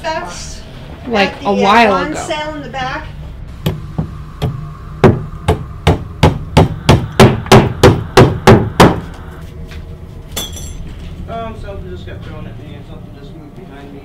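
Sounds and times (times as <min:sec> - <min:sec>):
loud sharp knocks: 0:03.6 - 0:09.1.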